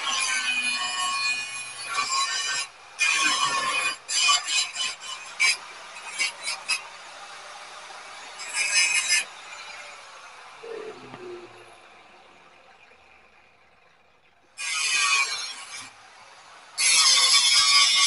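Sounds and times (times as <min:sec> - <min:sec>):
tool scraping spring steel: 0:00.0 - 0:06.8.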